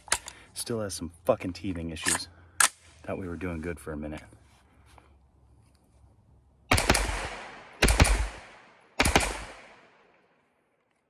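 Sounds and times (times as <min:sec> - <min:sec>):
pistol gunshots with echo: 0:06.7 - 0:10.2.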